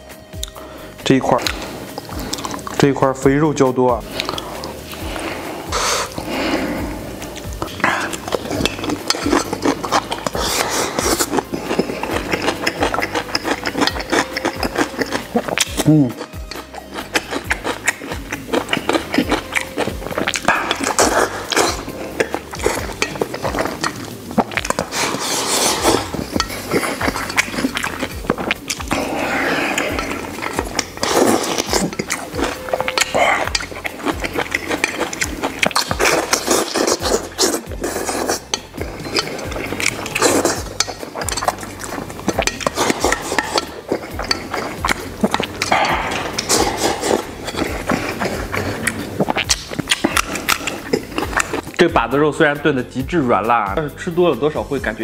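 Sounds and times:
wet chewing and smacking: 0.0s - 0.7s, 1.3s - 52.0s
chopsticks clicking on metal bowl: 38.4s - 47.8s.

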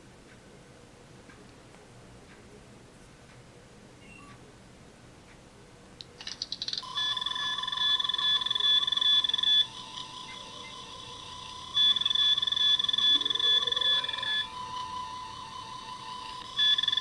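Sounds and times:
electronic ratchet sound: 6.2s - 17.0s
electronic beeping tones: 6.3s - 17.0s
lower pulsing tone: 6.8s - 17.0s.

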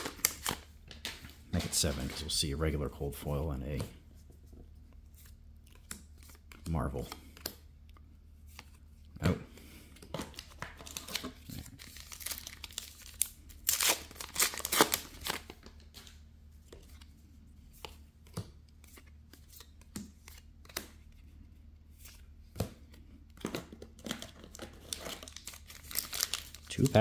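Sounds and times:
foil wrapper crinkling: 0.0s - 2.3s, 10.3s - 16.1s, 24.0s - 27.0s
cards clicking and snapping: 17.8s - 21.1s.

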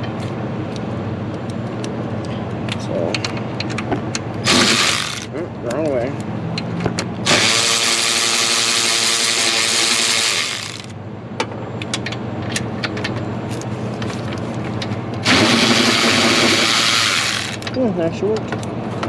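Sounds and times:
power tool motor spinning: 4.4s - 5.3s, 7.2s - 10.9s, 15.2s - 17.7s.

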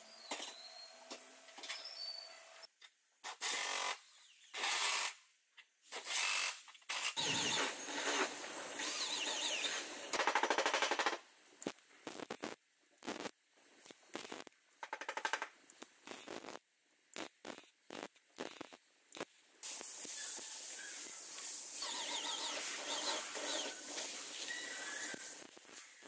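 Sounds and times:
hissing scrape: 7.2s - 10.1s, 19.6s - 25.8s.

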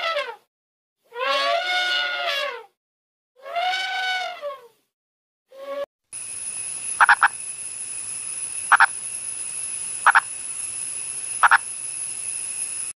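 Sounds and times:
steady high hiss: 6.2s - 12.9s
frog calling: 6.9s - 7.6s, 8.4s - 11.9s.

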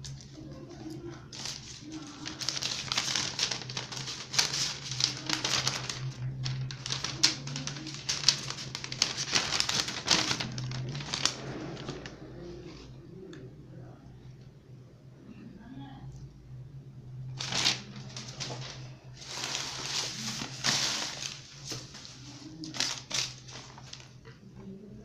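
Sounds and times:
shredded paper rustling: 1.3s - 12.7s, 17.4s - 24.2s.

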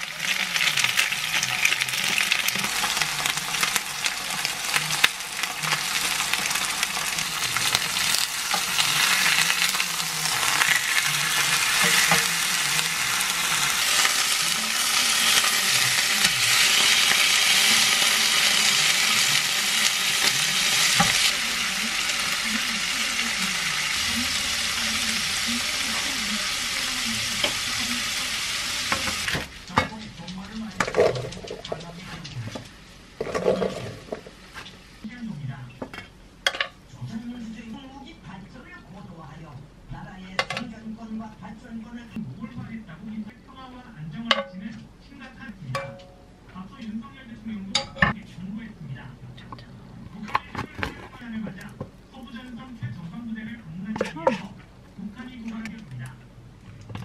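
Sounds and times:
food sizzling in a pan: 0.0s - 35.1s.

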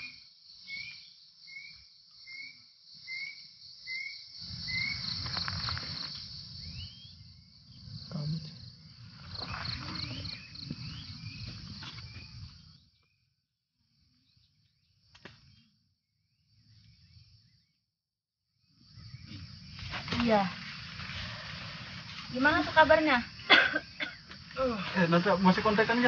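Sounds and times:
insects trilling: 0.0s - 17.8s, 18.5s - 26.0s.

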